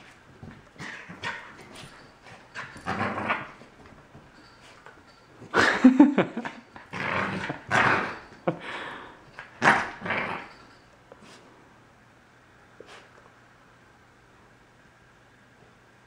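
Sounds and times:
puppy growling and huffing: 0.7s - 3.8s, 5.4s - 10.8s.

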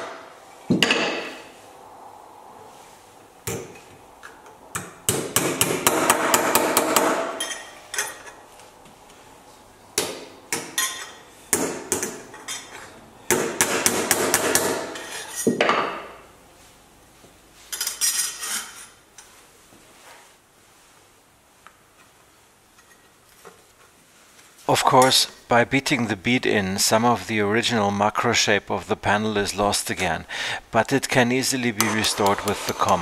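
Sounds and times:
hammer striking sheet metal: 4.8s - 7.7s, 13.3s - 15.1s.

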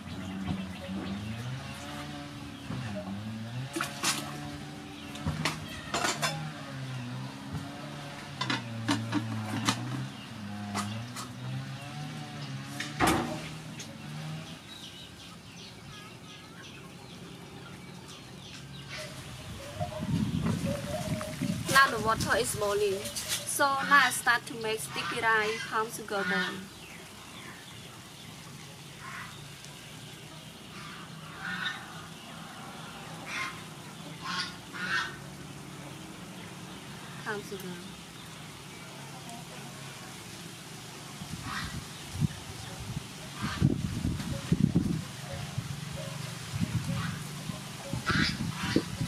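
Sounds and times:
chickens clucking: 16.4s - 26.7s, 30.2s - 37.7s, 41.3s - 49.0s
waterfowl calling: 18.8s - 27.7s, 29.0s - 29.5s, 30.6s - 35.4s, 41.3s - 42.0s, 43.3s - 44.5s, 45.2s - 49.0s.

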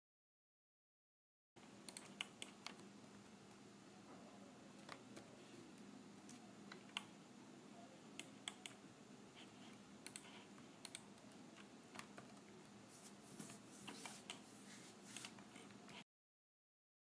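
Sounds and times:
low steady hum: 1.6s - 16.0s
mouse clicks: 8.2s - 8.8s, 10.0s - 12.4s.

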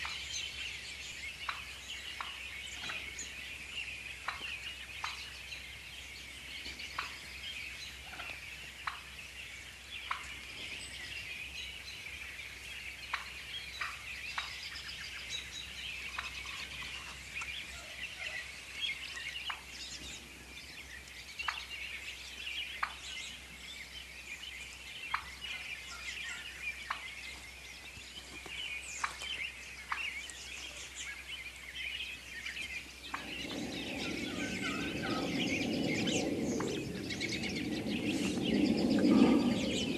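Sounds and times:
small birds chattering: 0.0s - 39.9s
turkeys gobbling: 33.0s - 35.8s.

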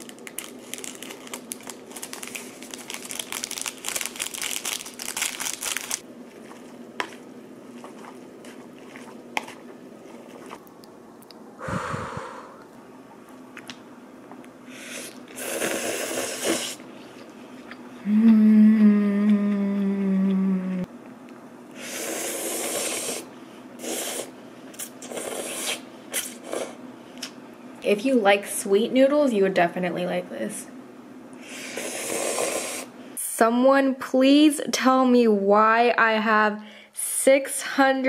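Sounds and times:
person humming mmm: 18.0s - 20.9s
noodles slurped: 21.8s - 26.8s.

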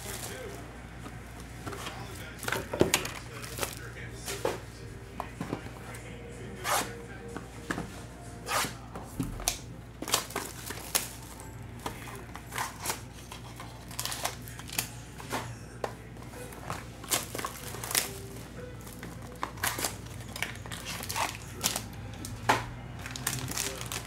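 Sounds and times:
plastic shrink-wrap crinkling: 0.0s - 0.6s, 1.7s - 4.3s, 9.5s - 14.9s, 16.5s - 24.0s.

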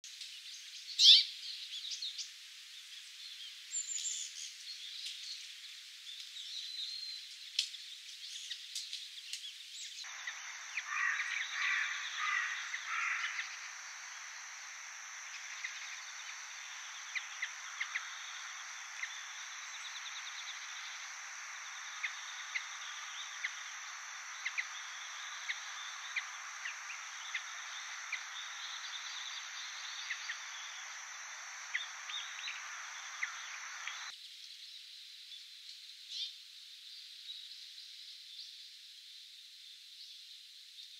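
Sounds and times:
high hiss: 8.4s - 34.1s.

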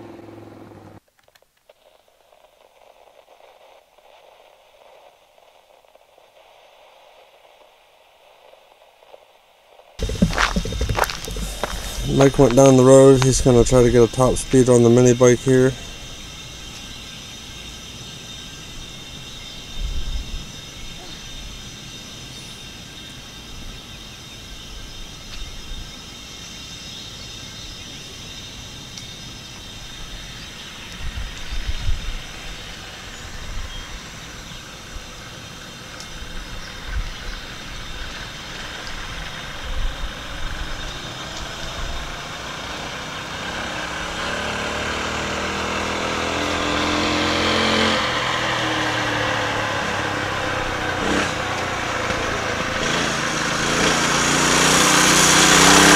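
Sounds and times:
wind knocking on microphone: 10.0s - 13.9s
small engine at full throttle: 10.0s - 16.1s, 37.4s - 55.9s.

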